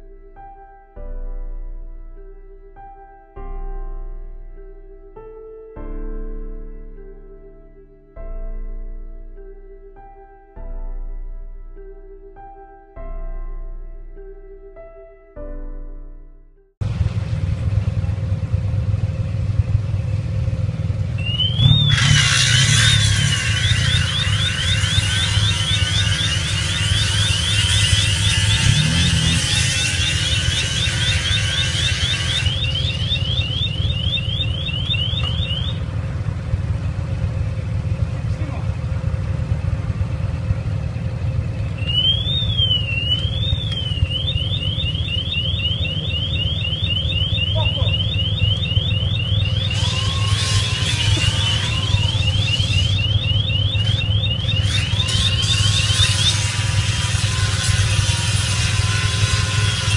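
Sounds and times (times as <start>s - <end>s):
low engine rumble: 16.8s - 59.9s
electronic alarm whooping: 21.2s - 35.9s, 41.7s - 59.9s
angle grinder cutting metal: 21.6s - 33.8s, 49.6s - 53.1s, 53.8s - 59.9s.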